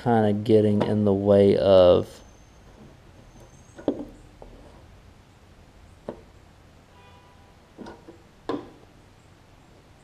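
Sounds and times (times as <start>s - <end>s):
light knocks and clicks of parts: 7.8s - 8.9s.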